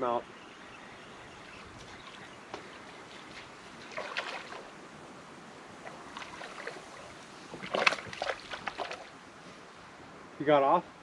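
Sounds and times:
fish thrashing and splashing: 0:01.8 - 0:04.7, 0:05.9 - 0:09.1.

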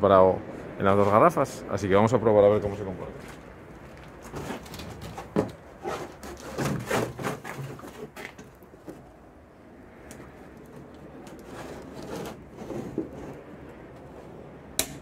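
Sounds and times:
plastic jugs knocking and rubbing: 0:04.2 - 0:09.0, 0:11.3 - 0:13.4.

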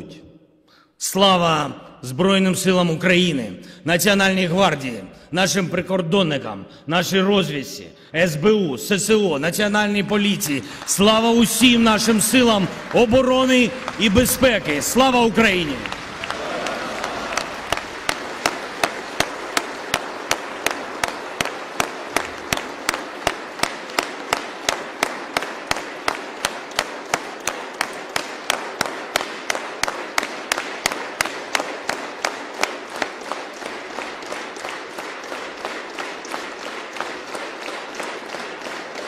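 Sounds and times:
audience clapping in unison: 0:09.1 - 0:39.0.

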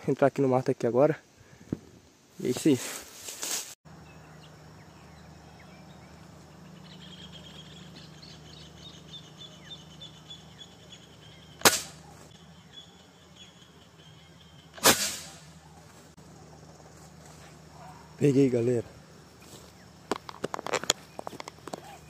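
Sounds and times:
high pulsing chirping: 0:03.9 - 0:14.8
sharp gunshot: 0:11.6 - 0:12.0, 0:14.8 - 0:15.6.

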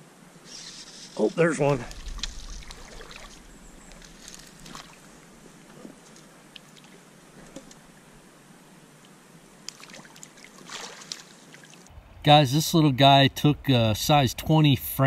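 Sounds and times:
shallow river water running: 0:00.0 - 0:12.2
fish splashing at surface: 0:01.9 - 0:03.4, 0:04.0 - 0:05.2, 0:09.7 - 0:11.7.

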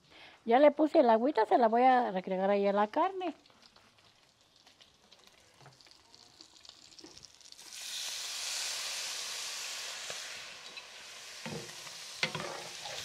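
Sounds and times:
meat sizzling: 0:03.0 - 0:13.0
loud hiss of water on hot meat: 0:07.6 - 0:13.0.

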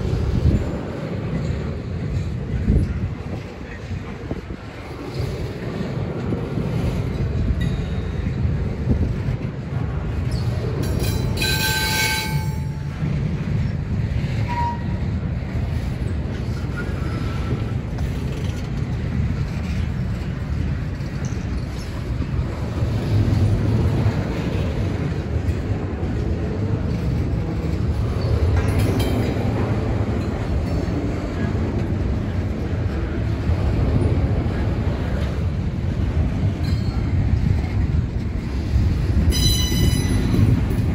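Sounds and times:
freight train rumbling: 0:00.0 - 0:40.9
train wheel squeal: 0:10.2 - 0:13.0, 0:14.3 - 0:15.2, 0:16.1 - 0:18.6, 0:21.0 - 0:22.2, 0:28.0 - 0:30.8, 0:36.6 - 0:37.5, 0:39.2 - 0:40.9.

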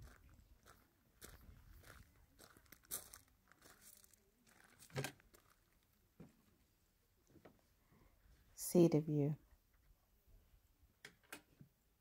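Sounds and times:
footsteps on gravel: 0:00.0 - 0:05.9.

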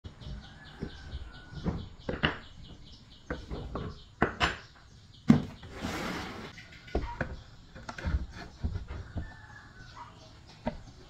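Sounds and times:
wooden parts knocking: 0:00.7 - 0:05.6.

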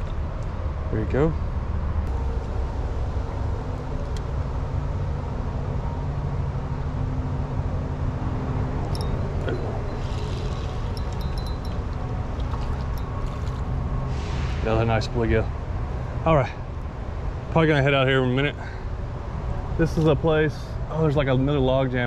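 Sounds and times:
highway traffic rumble: 0:00.0 - 0:22.0
fishing reel clicks and whir: 0:10.0 - 0:13.6.

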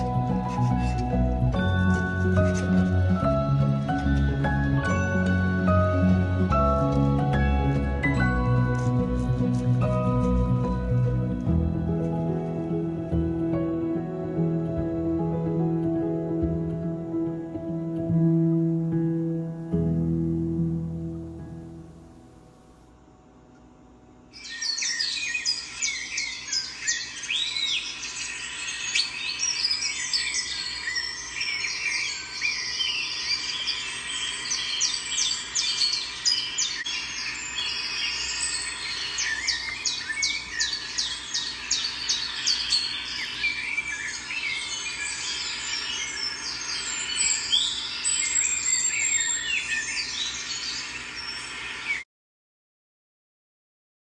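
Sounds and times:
birds chirping and singing: 0:24.4 - 0:52.0.

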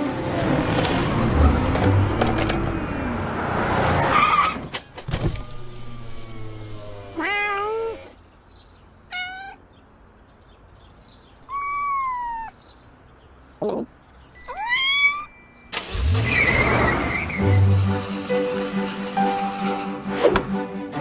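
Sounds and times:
car noise: 0:00.0 - 0:07.2, 0:15.6 - 0:20.1
cat meowing: 0:07.1 - 0:08.2, 0:09.1 - 0:09.6, 0:11.4 - 0:12.6, 0:14.4 - 0:15.4.

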